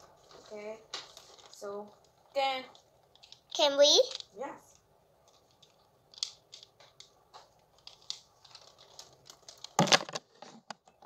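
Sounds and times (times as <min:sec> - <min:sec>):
plastic parts clicking: 0:03.0 - 0:04.3, 0:05.2 - 0:11.0.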